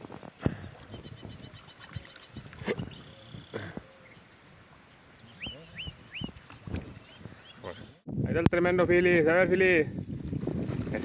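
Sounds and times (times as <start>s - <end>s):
small birds chirping: 0.5s - 8.0s.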